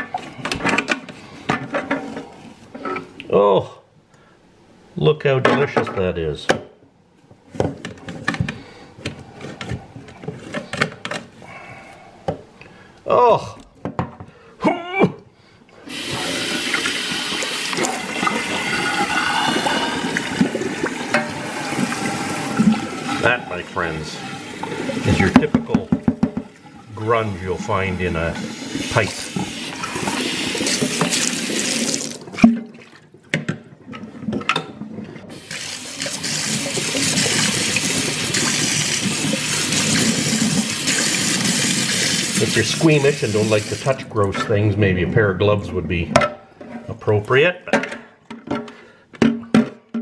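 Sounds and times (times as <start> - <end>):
water running into steel sink: 15.9 - 32.5, 35.3 - 44.6
pipe knocking in sink: 25.0 - 26.5.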